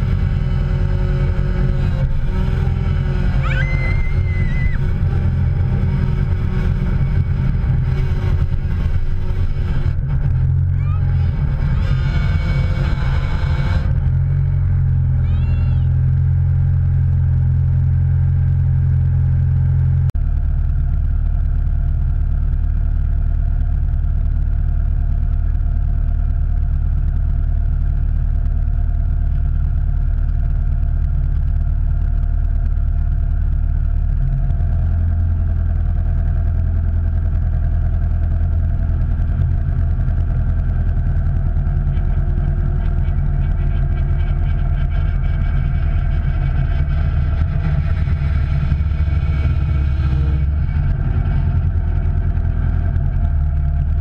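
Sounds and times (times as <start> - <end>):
motor vehicle drone: 0.0 - 54.0.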